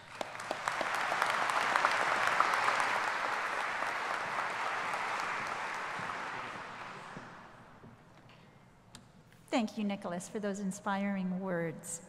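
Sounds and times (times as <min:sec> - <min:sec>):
audience applauding: 0:00.0 - 0:07.7.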